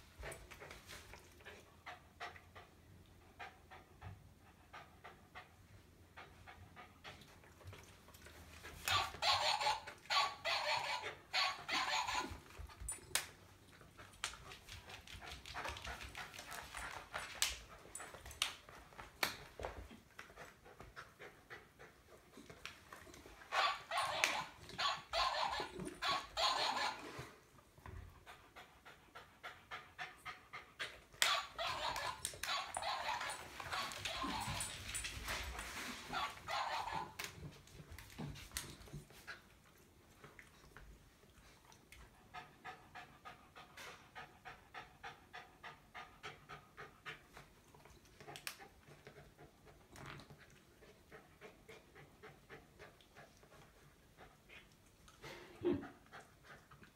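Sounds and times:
dog panting hard: 0:13.7 - 0:24.6, 0:25.2 - 0:37.2, 0:41.4 - 0:56.9.

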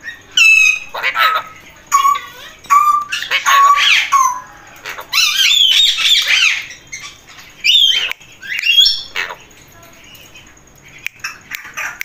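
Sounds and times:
parakeets squawking: 0:00.0 - 0:12.0.

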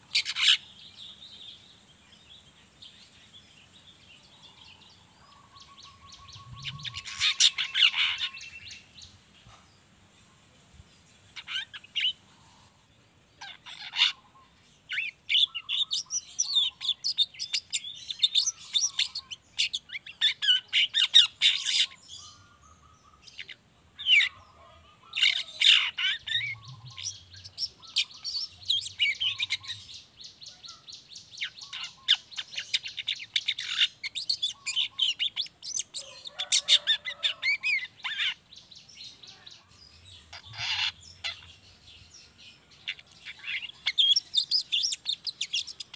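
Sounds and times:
shrike twittering high chirps: 0:04.4 - 0:09.2, 0:38.1 - 0:45.9.

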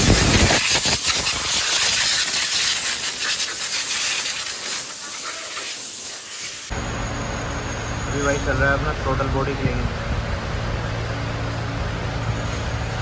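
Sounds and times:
steady hiss: 0:00.0 - 0:06.8
cloth rubbing and wiping: 0:00.4 - 0:06.7.

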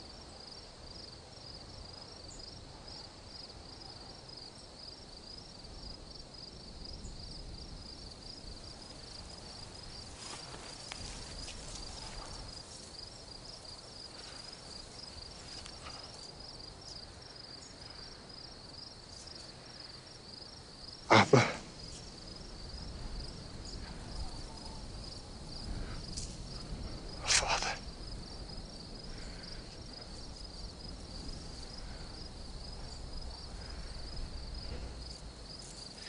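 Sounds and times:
crickets chirping: 0:00.0 - 0:36.0
rustling of grass and clothing: 0:07.7 - 0:21.0, 0:21.6 - 0:36.0.

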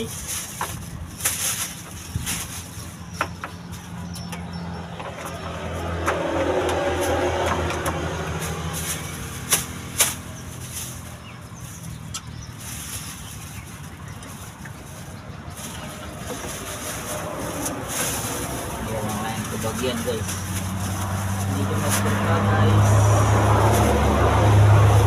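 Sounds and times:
plastic bag crinkling: 0:00.0 - 0:04.0, 0:08.0 - 0:25.0
vehicle engine passing by: 0:02.3 - 0:25.0.

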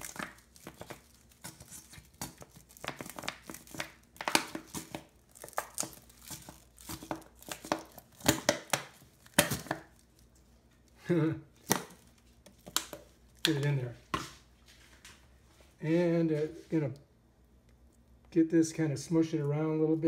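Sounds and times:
garlic rustling over vegetables: 0:00.0 - 0:10.9.

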